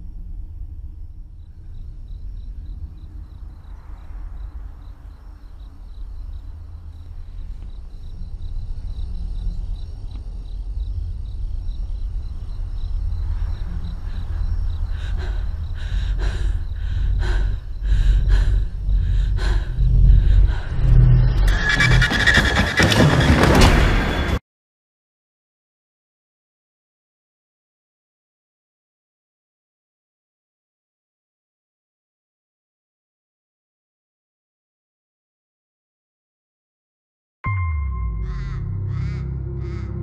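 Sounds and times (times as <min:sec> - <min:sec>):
low rumbling drone: 0:00.0 - 0:23.4, 0:37.5 - 0:40.0.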